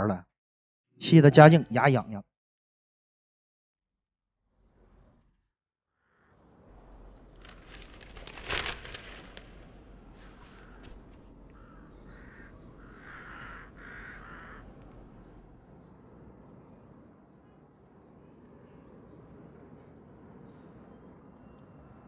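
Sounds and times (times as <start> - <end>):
paper rustling: 7.3 - 11.3
faint bird calls: 7.7 - 15.4.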